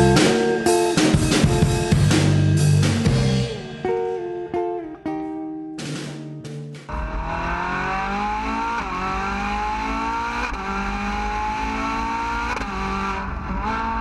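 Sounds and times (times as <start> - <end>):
car engine accelerating: 6.4 - 14.0.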